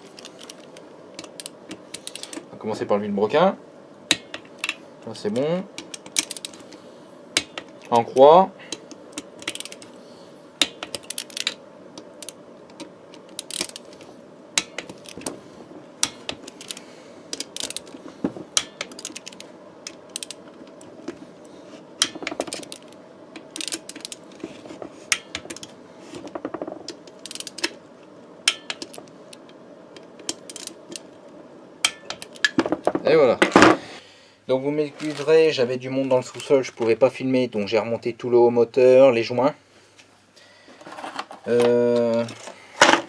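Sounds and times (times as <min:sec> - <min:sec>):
faint steady hum: 0:00.0 - 0:43.0
torque wrench clicking: 0:05.4 - 0:06.7, 0:08.7 - 0:10.0, 0:10.6 - 0:14.0, 0:16.0 - 0:18.0, 0:18.6 - 0:20.8, 0:22.0 - 0:24.2, 0:26.9 - 0:27.7, 0:30.2 - 0:31.1.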